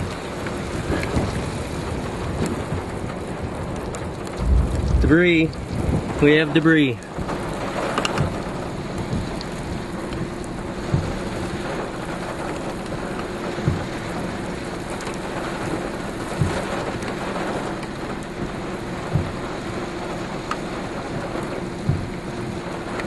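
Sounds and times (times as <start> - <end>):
rain: 0.0 - 23.0
wind: 0.0 - 23.0
dull low thump: 4.3 - 6.2, 10.9 - 11.2, 13.6 - 13.9, 19.1 - 19.4, 21.9 - 22.1.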